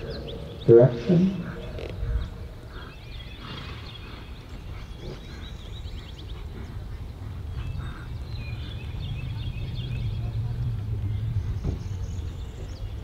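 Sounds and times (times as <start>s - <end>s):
birds chirping and trilling: 0.0s - 13.0s
low outdoor rumble: 0.0s - 13.0s.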